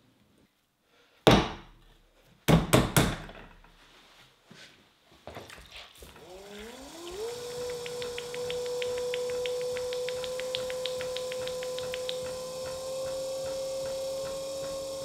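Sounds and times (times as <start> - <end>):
pottery wheel motor whine: 6.1 - 15.0
hands slapping clay: 7.5 - 15.0.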